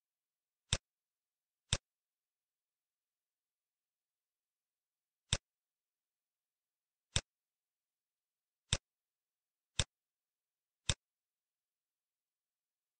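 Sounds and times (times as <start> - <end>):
computer mouse clicks: 1.7 - 1.9, 10.8 - 11.1.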